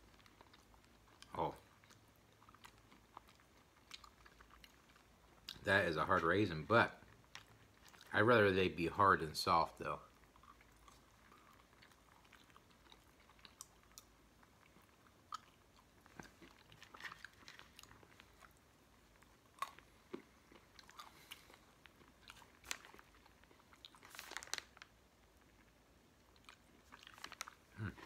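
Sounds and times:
chewing and crunching nuts: 0.0 - 28.0.

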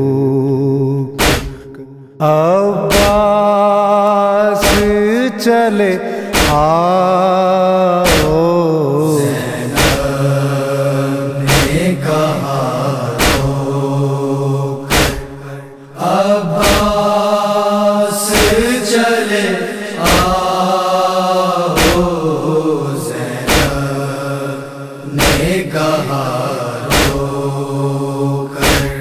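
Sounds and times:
mournful chanting voice: 0.0 - 29.0
sharp beat: 1.2 - 1.6, 2.9 - 3.4, 4.6 - 5.0, 6.3 - 6.8, 8.1 - 8.4, 11.5 - 11.8, 14.9 - 15.4, 16.6 - 17.0, 20.1 - 20.4, 21.8 - 22.1, 25.2 - 25.6, 26.9 - 27.2, 28.6 - 29.0.

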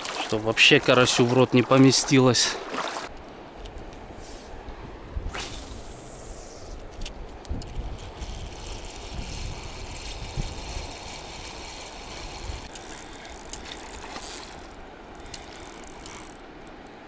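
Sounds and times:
wind on microphone: 4.7 - 12.7
fishing reel whirring and clicking: 7.6 - 17.0.

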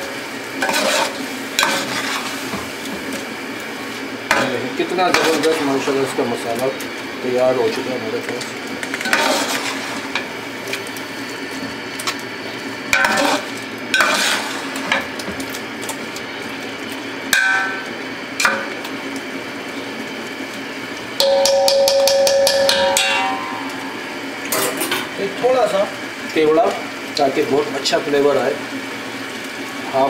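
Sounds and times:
food sizzling: 0.0 - 30.0
spoon scraping in pot: 9.0 - 9.9
spoon clanking against pot: 21.2 - 23.8.

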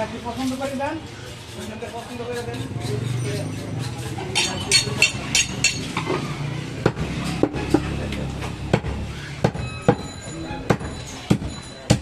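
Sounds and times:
knife chopping meat and bone: 6.8 - 10.1, 10.7 - 12.0.

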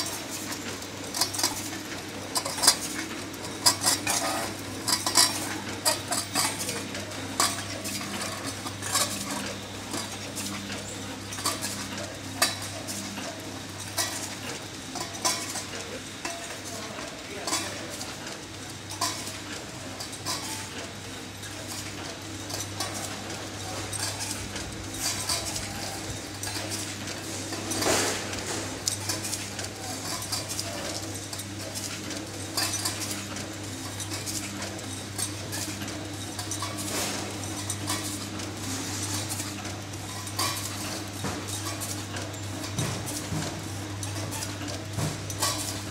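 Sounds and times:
metallic clicking and clatter: 0.0 - 45.9.

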